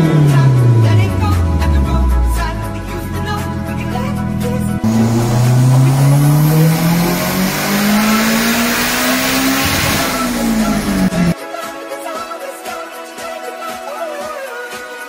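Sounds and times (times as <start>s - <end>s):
car engine revving: 0.0s - 11.4s.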